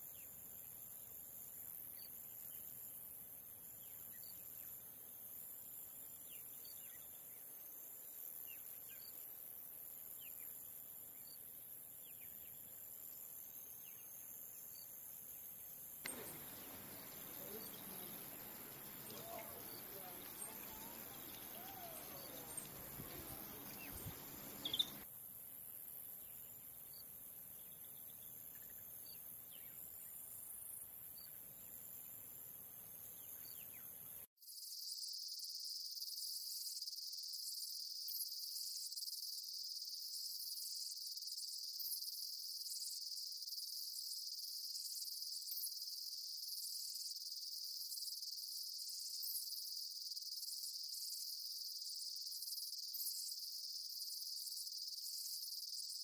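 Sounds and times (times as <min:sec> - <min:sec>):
high-pitched insect chorus: 0:00.0 - 0:25.1, 0:34.5 - 0:56.0
faint high chirps: 0:16.0 - 0:25.0.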